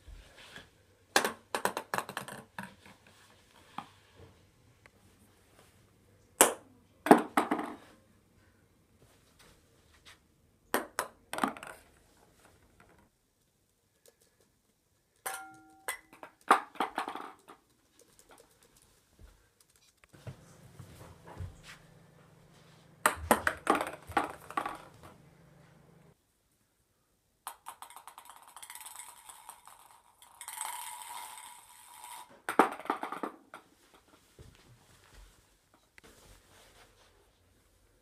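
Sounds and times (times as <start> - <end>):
ping pong balls bouncing in plastic bins: 1.1 - 3.0, 10.8 - 12.0, 15.2 - 18.5, 23.0 - 25.6, 27.5 - 30.8, 32.4 - 33.8.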